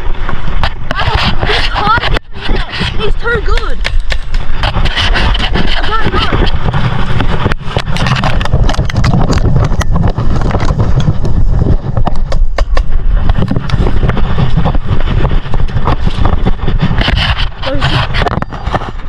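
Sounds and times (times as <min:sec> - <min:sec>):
rustling in grass and leaves: 0:13.0 - 0:19.0.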